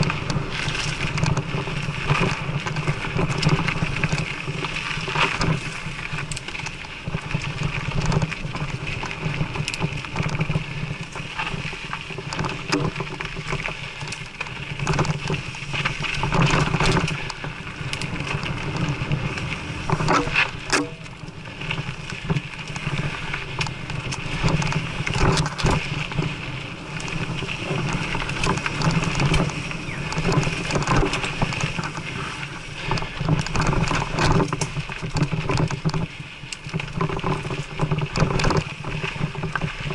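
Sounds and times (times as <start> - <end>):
bike clicks and rattles: 0.0 - 39.9
tyres on dirt: 0.0 - 39.9
wind buffeting microphone: 0.0 - 39.9.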